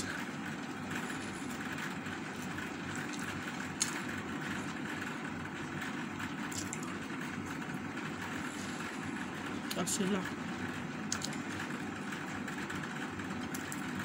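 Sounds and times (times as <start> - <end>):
low mechanical hum: 0.0 - 14.0
chewing clicks: 6.5 - 6.9, 11.1 - 11.4.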